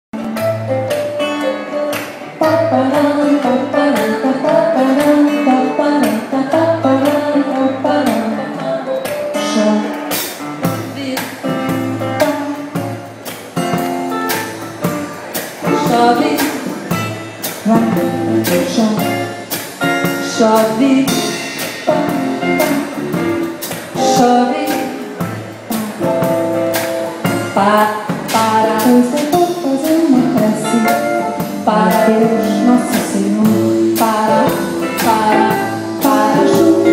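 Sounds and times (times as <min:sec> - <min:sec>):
keyboard accompaniment: 0:00.2 - 0:36.9
woman singing into microphone: 0:02.4 - 0:10.2, 0:10.8 - 0:11.4, 0:15.6 - 0:16.8, 0:17.6 - 0:19.4, 0:20.2 - 0:21.5, 0:24.0 - 0:26.4, 0:27.4 - 0:36.9.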